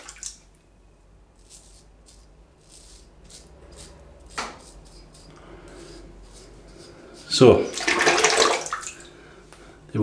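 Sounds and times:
razor scraping stubble: 1.4 - 7.6.

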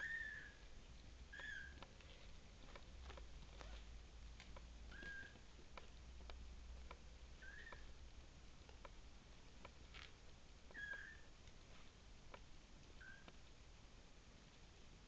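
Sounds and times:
kittens rustling in bedding: 1.9 - 5.6.

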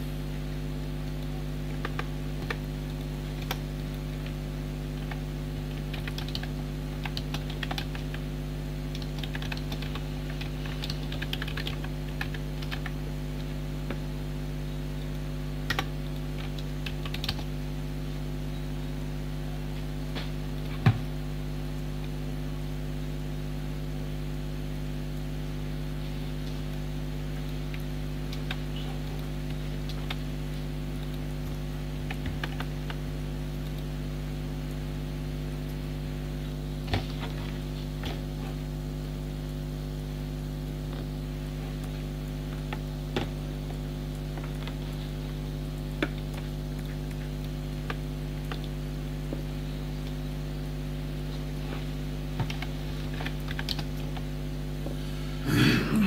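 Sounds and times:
low electrical hum: 0.0 - 56.0
computer keyboard clicking: 1.8 - 4.4, 5.0 - 8.2, 8.9 - 13.5, 15.1 - 17.5, 27.7 - 30.3, 31.0 - 33.0, 52.4 - 54.3.

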